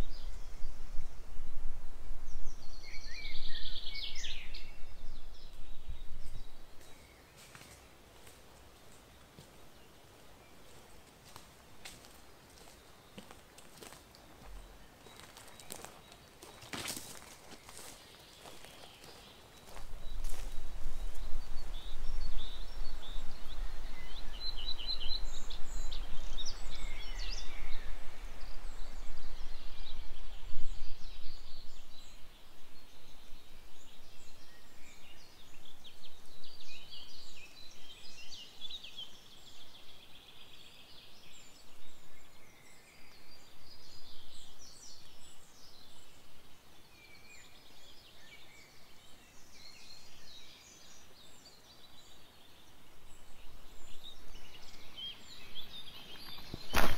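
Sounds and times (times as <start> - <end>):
wind rumble on microphone: 0.0 - 7.0, 19.6 - 38.3
songbirds singing: 0.0 - 56.9.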